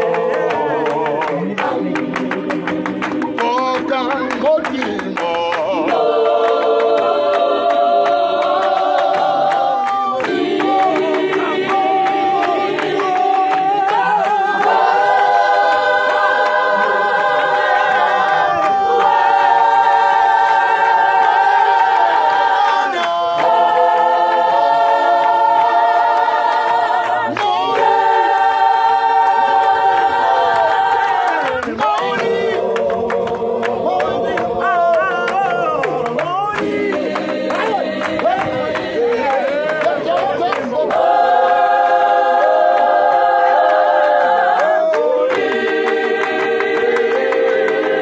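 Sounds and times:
choir singing a cappella: 0.0 - 48.0
hand clapping: 0.0 - 48.0.

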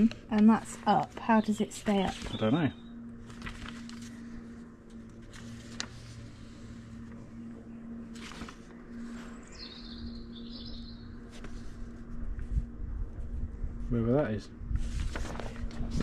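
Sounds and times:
paper pages rustling: 0.0 - 12.5, 14.8 - 16.0
faint steady hum: 0.0 - 16.0
bird chirping and warbling: 1.2 - 3.0, 9.4 - 11.2.

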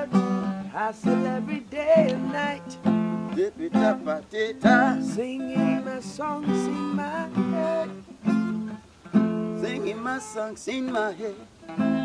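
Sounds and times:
man singing: 0.0 - 8.6, 9.5 - 12.0
acoustic guitar strumming: 0.0 - 12.0.

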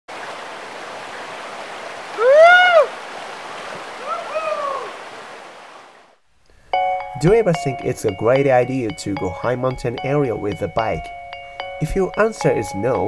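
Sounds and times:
flowing water rushing: 0.1 - 6.2
animal calls rising and falling: 2.0 - 5.9.

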